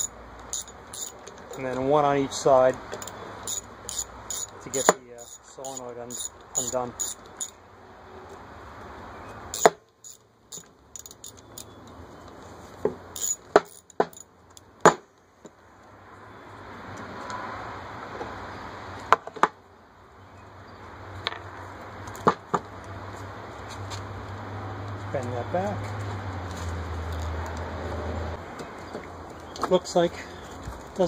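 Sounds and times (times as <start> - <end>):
metallic clinks of ratchet and bolts: 0.0 - 1.8, 2.9 - 7.6, 9.5 - 11.8, 13.2 - 14.7.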